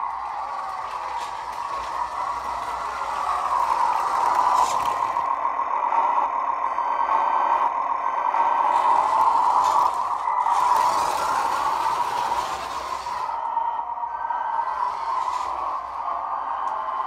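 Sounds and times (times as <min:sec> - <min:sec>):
toy tractor motor whirring: 0:00.0 - 0:05.4, 0:08.4 - 0:13.5, 0:14.6 - 0:16.8.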